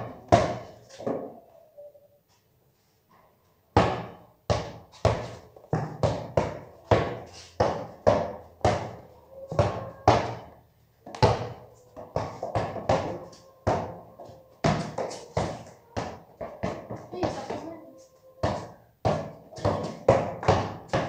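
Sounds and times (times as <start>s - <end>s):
basketball bouncing on concrete: 0.0s - 1.2s, 3.7s - 17.8s, 18.4s - 21.0s.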